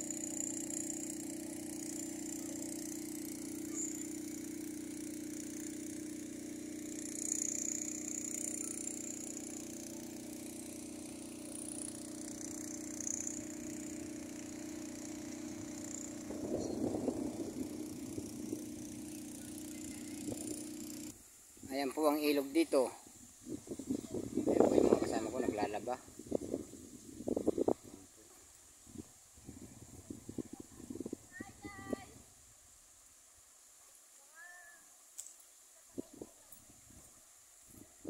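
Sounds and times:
motorcycle engine idling: 0.0s - 21.9s.

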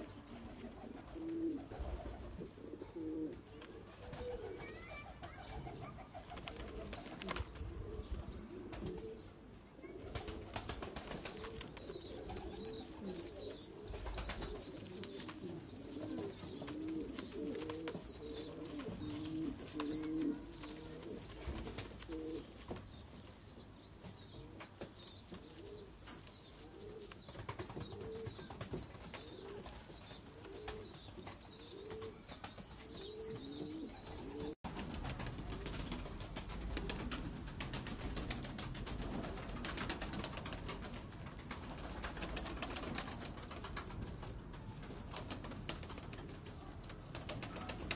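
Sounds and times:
pigeons cooing: 0.0s - 22.6s, 24.2s - 24.8s, 25.4s - 37.3s.

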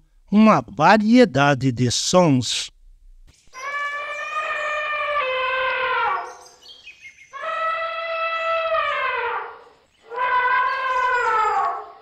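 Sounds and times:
elephant trumpeting: 3.6s - 6.6s, 7.4s - 12.0s.

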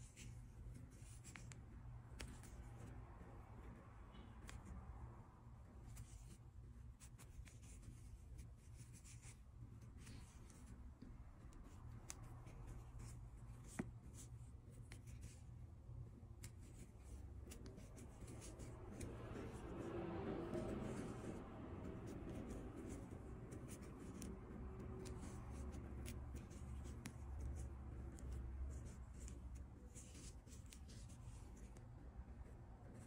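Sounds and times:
crochet hook scratching yarn: 0.0s - 4.9s, 5.6s - 33.0s
low steady hum: 0.0s - 33.0s.

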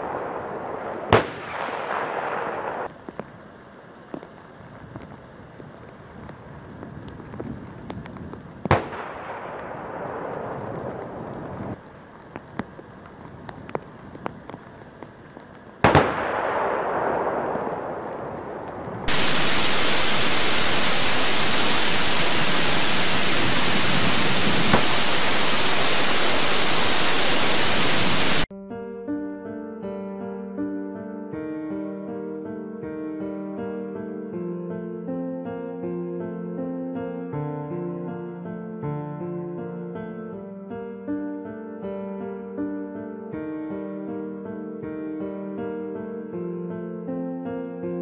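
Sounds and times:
distant artillery explosions: 0.0s - 3.3s, 8.6s - 11.8s, 15.8s - 28.5s
loud steady static hiss: 0.0s - 28.5s.

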